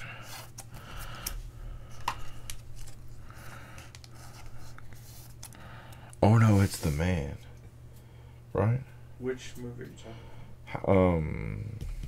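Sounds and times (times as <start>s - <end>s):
cards and wrappers rustling: 0.0s - 5.6s, 6.2s - 7.3s
steady low hum: 0.0s - 12.0s.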